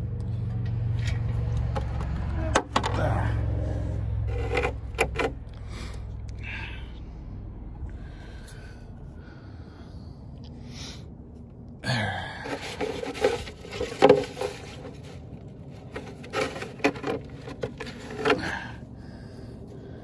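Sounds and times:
rubbing and scraping handling noise: 0:03.7 - 0:05.5, 0:12.4 - 0:18.9.

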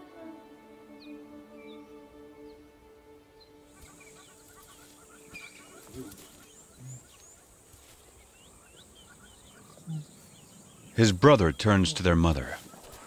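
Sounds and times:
soft music: 0:00.0 - 0:07.5
birds chirping: 0:00.9 - 0:13.0.

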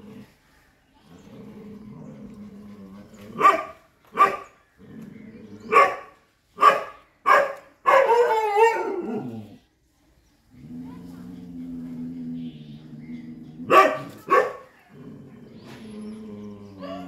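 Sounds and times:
dog barking: 0:03.4 - 0:04.5, 0:05.7 - 0:09.2, 0:13.7 - 0:14.7
dog bark-howl: 0:06.6 - 0:09.2.

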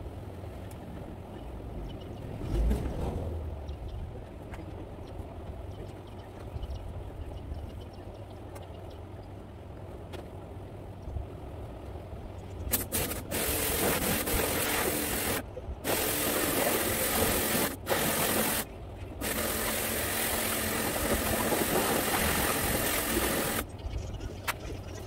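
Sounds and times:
pressure washer spraying: 0:12.7 - 0:23.6
pump hum: 0:12.7 - 0:23.7.

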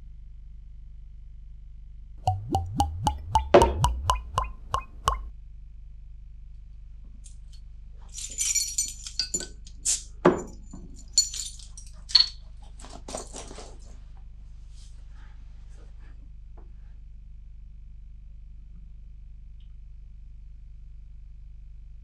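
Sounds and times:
bright plinking notes: 0:02.3 - 0:05.3
metal and glass clinks: 0:08.1 - 0:12.4.

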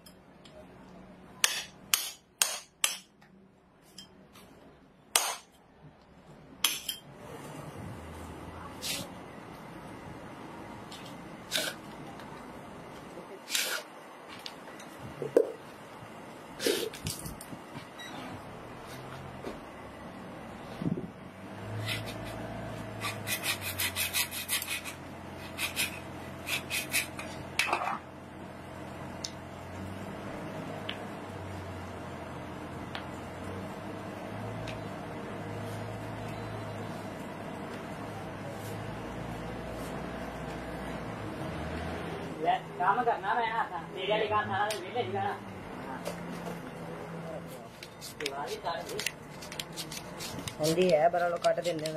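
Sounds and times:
hammer striking steel chisel: 0:01.4 - 0:03.2, 0:05.1 - 0:05.6
metal tool scraping lead plates: 0:23.0 - 0:27.7.

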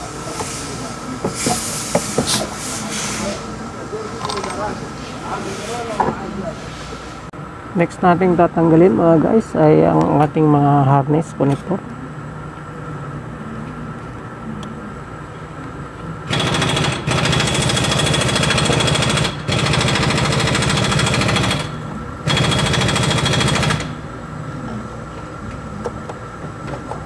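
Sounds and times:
loud mechanical hammering rattle: 0:16.3 - 0:24.1.

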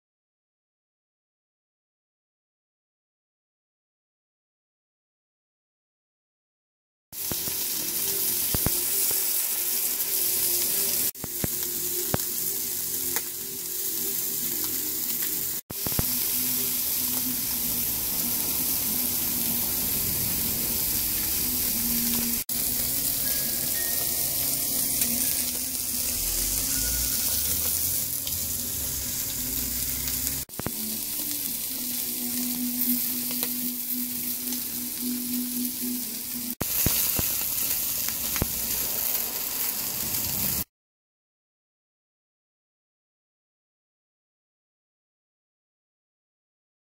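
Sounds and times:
steaks sizzling on grill: 0:07.2 - 0:40.7.

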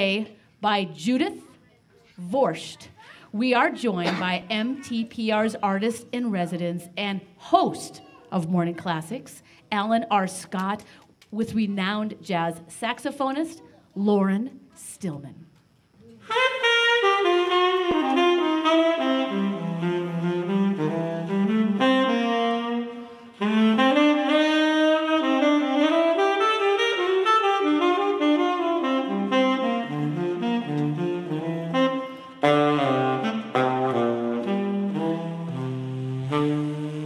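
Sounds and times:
saxophone playing jazz melody: 0:16.2 - 0:37.0.

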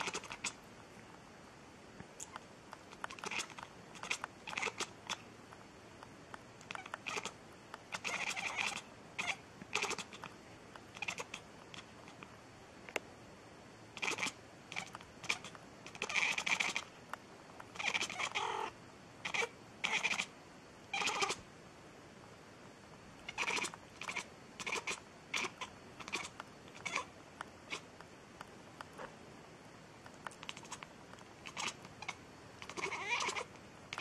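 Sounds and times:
cat meowing: 0:03.1 - 0:05.2, 0:06.7 - 0:10.2, 0:10.9 - 0:11.4, 0:17.8 - 0:20.3, 0:20.9 - 0:21.4, 0:23.3 - 0:27.1, 0:31.4 - 0:34.0.

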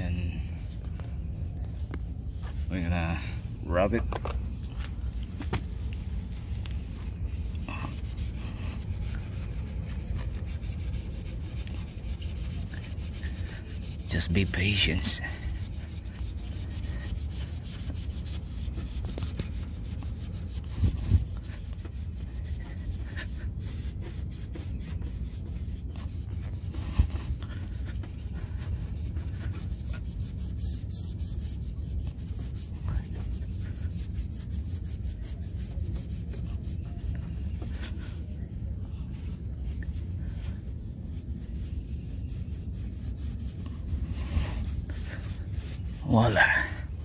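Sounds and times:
sponge pad scrubbing metal: 0:07.4 - 0:38.8.

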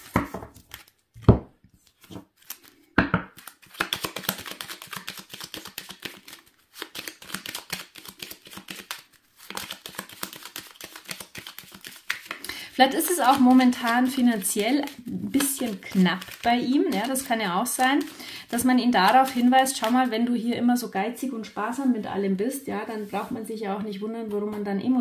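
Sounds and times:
cards being shuffled: 0:00.0 - 0:20.1.

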